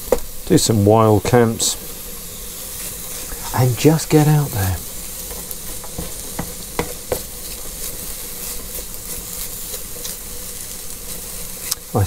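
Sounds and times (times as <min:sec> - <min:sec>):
mushrooms sizzling in a frying pan: 0:00.0 - 0:12.0
utensil clicking against pan: 0:05.3 - 0:07.3.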